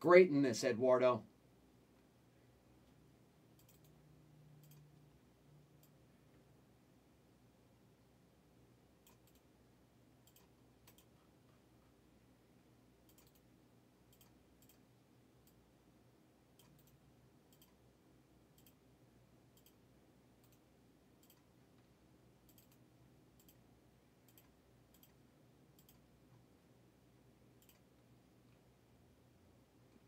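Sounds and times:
low steady hum: 0.0 - 30.0
computer mouse clicks: 3.5 - 4.0, 4.6 - 5.0, 5.8 - 6.0, 9.0 - 9.5, 10.2 - 11.6, 13.0 - 13.5, 14.1 - 15.6, 16.6 - 17.8, 18.5 - 18.8, 19.5 - 19.8, 20.4 - 26.4, 27.6 - 28.6.

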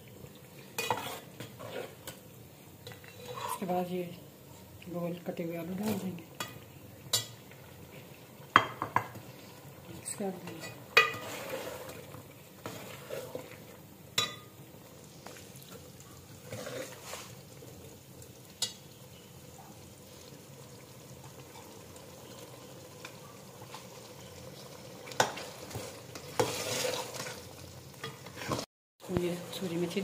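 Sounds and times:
food simmering sizzle: 0.0 - 30.0
metal ladle scraping pot: 0.8 - 2.2, 3.0 - 3.7, 10.4 - 13.6, 16.4 - 17.4, 25.2 - 27.4.

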